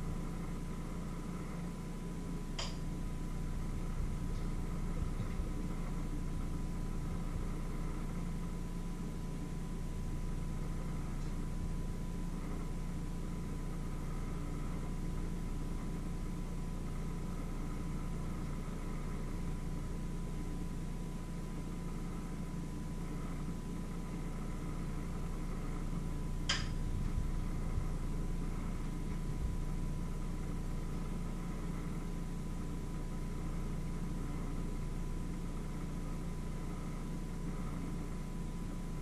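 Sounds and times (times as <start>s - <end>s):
low mechanical hum: 0.0s - 39.0s
sharp click: 2.6s - 2.8s, 26.5s - 26.8s.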